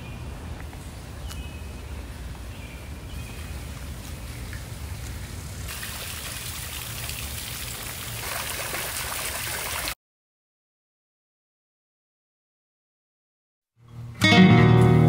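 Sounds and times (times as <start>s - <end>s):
fountain water splashing: 3.4s - 10.0s.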